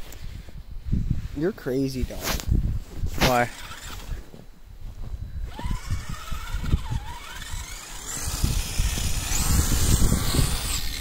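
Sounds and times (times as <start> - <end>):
electric motor whining: 3.3 - 4.2, 5.4 - 11.0.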